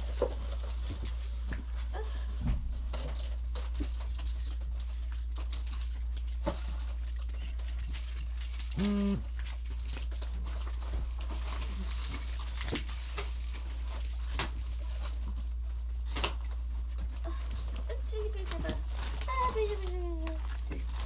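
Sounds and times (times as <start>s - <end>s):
metallic jingling and clicks: 3.3s - 14.4s, 19.2s - 21.0s.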